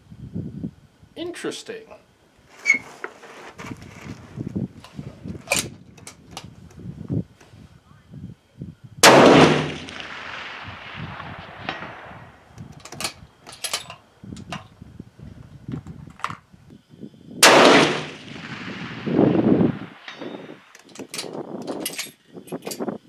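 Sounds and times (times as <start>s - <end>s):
rifle shots with echo: 9.0s - 12.6s, 17.4s - 20.7s
metallic rifle bolt clicks: 11.2s - 14.6s.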